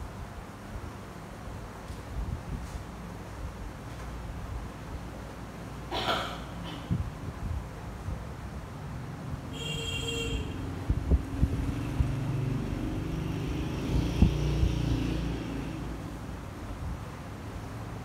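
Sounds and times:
passing vehicle engine rumble: 0:08.3 - 0:18.0.

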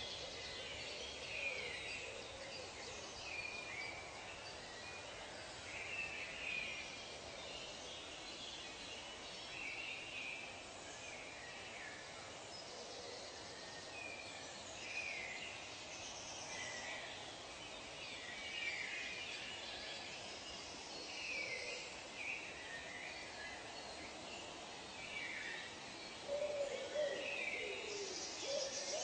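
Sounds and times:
steady hiss: 0:00.0 - 0:29.0
bird calls and chirps: 0:11.2 - 0:29.0.

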